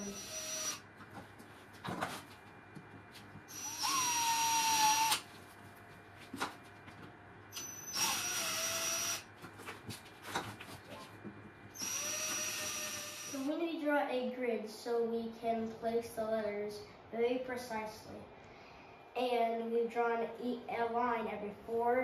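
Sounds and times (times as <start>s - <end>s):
cordless drill whining: 0.0s - 0.8s, 3.5s - 5.2s, 7.5s - 9.3s, 11.8s - 13.4s.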